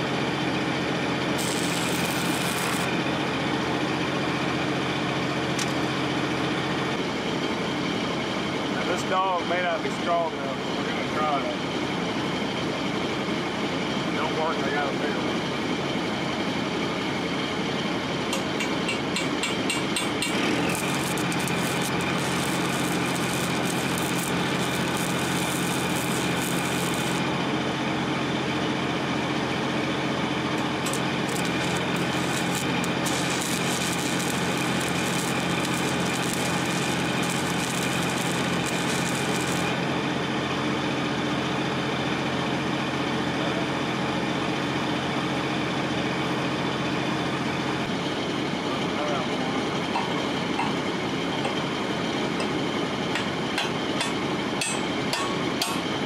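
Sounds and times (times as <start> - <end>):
engine running steadily: 0.0 - 56.0
arc welding crackling: 1.3 - 3.0, 20.1 - 27.4, 30.6 - 39.9.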